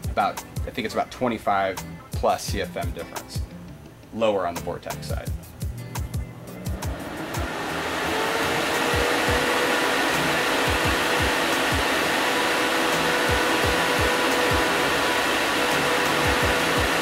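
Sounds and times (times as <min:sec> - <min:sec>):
fan whine: 0:05.2 - 0:17.0
duct fan rushing air: 0:05.4 - 0:17.0.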